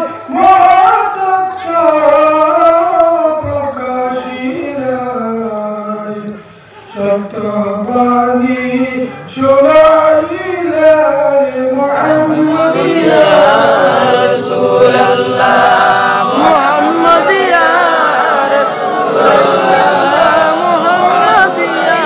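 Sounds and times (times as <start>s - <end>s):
man chanting into a microphone: 0.0s - 22.0s
men's chorus chanting: 7.0s - 22.0s.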